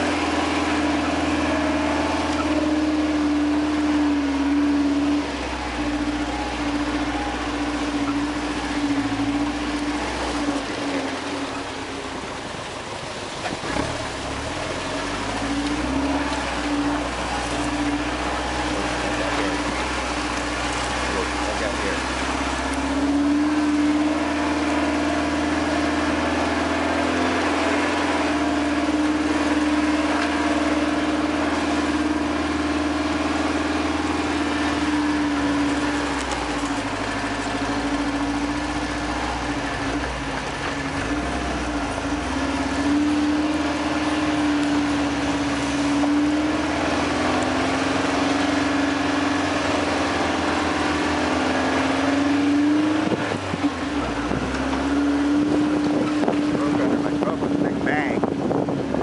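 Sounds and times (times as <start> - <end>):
car engine droning: 0.0 - 59.0
road noise: 0.0 - 59.0.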